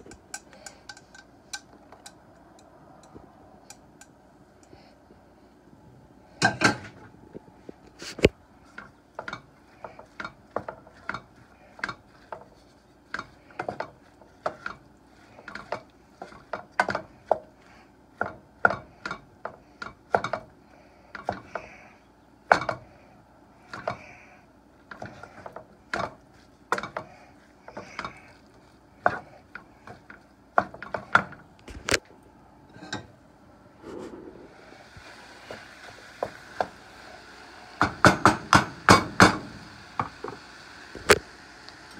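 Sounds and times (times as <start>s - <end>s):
wooden spoon scraping a frying pan: 8.0s - 17.5s, 24.9s - 31.2s.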